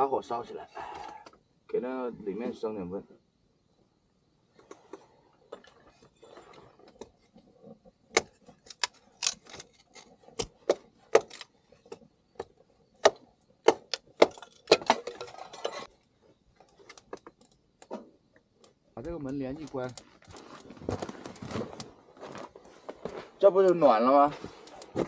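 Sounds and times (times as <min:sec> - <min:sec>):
soft rustling: 0:19.6 - 0:25.0.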